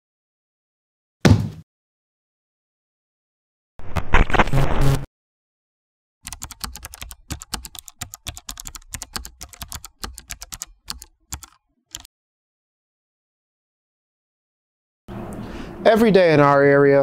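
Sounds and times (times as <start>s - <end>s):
electronic glitch sound: 3.9s - 5.1s
typing key clicks: 6.2s - 12.1s.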